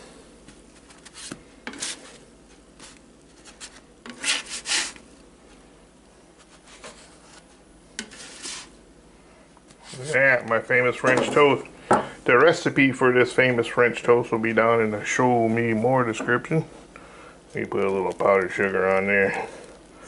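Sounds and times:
spatula scraping griddle plate: 1.6 - 2.2, 4.0 - 5.0, 8.0 - 8.8.

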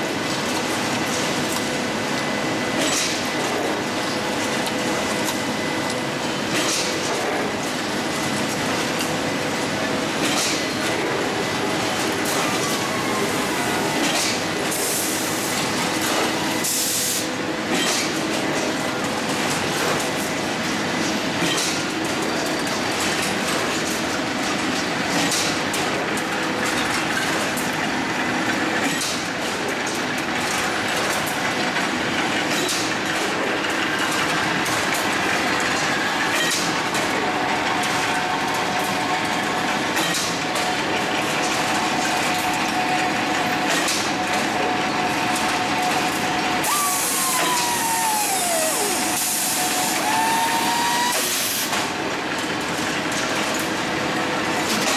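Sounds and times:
production line machinery din: 0.0 - 54.9
whining tone falling in pitch: 46.6 - 49.3.

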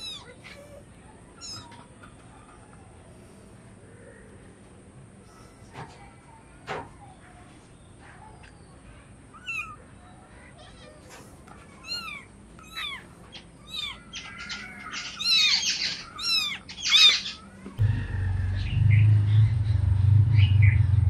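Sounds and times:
kitten meowing: 0.0 - 0.8, 9.4 - 9.8, 11.8 - 17.2.

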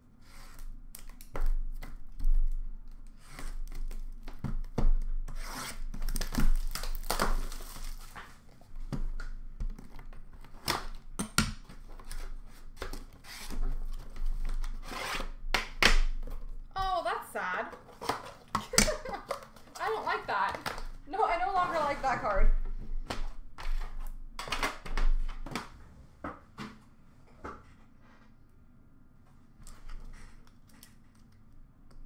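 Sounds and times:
cardboard box being unwrapped: 5.4 - 8.5.

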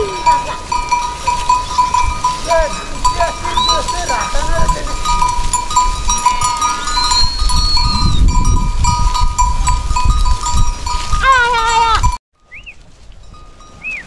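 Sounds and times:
sheep bells clanking: 0.0 - 14.0
sheep bleating: 11.2 - 12.1.

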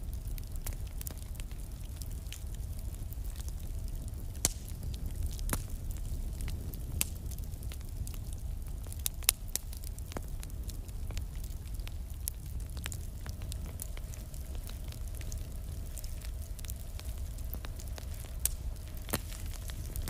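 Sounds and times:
fire crackling and popping: 0.0 - 20.0
low steady rumble: 0.0 - 20.0.

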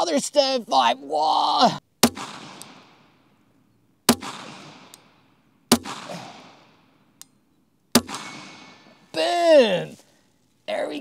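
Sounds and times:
pistol shots with echo: 2.0 - 3.3, 4.1 - 7.2, 7.9 - 9.0.

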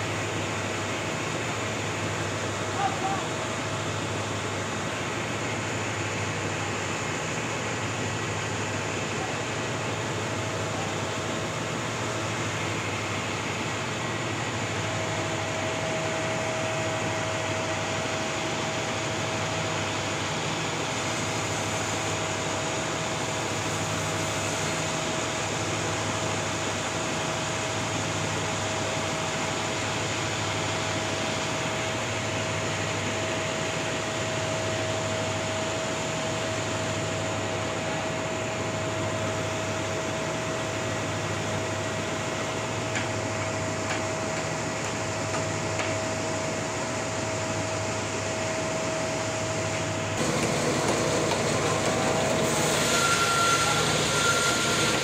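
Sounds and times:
band sawmill running: 0.0 - 55.0.

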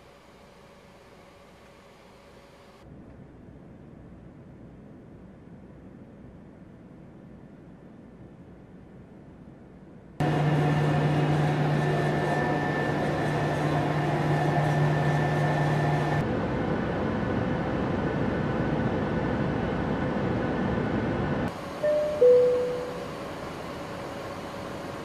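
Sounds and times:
low hum: 0.0 - 25.0
jet engine and airflow rush: 10.2 - 25.0
high steady tone: 21.5 - 23.5.

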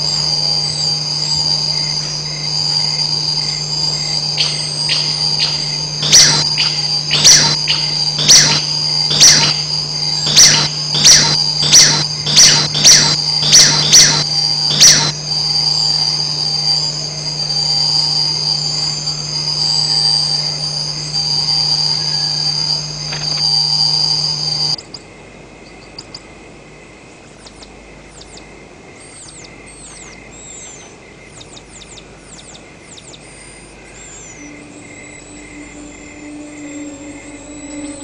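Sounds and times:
high drone: 0.0 - 24.8, 33.3 - 38.0
low hum: 0.0 - 24.8, 31.5 - 38.0
tarsier shrill whistles: 0.0 - 24.9, 27.4 - 38.0.

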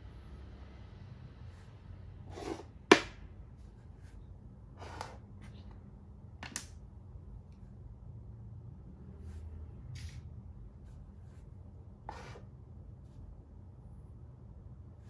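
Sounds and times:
chess pieces scraping on board: 2.3 - 2.7.

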